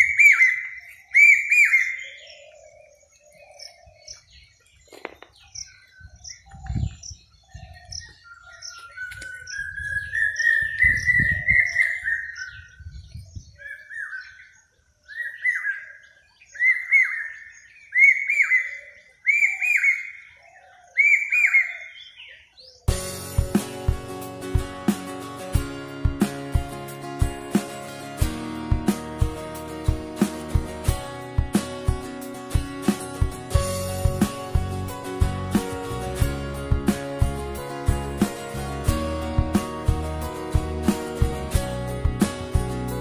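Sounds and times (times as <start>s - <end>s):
bird long rising call: 0.0s - 4.5s, 13.6s - 22.8s.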